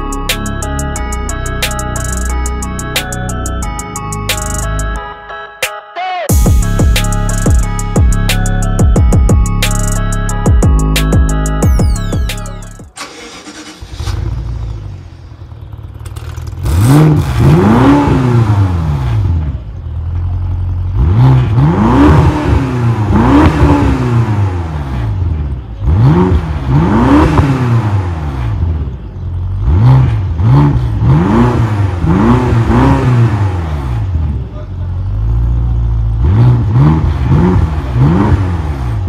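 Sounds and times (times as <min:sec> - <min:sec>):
car engine revving from idle: 0:13.0 - 0:39.0.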